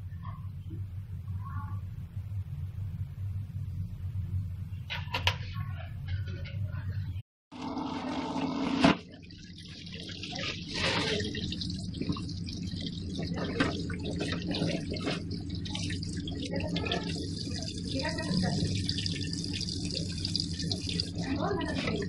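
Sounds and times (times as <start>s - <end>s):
tap water running into colander: 7.6s - 22.0s
meat rinsed by hand splashing: 9.0s - 22.0s.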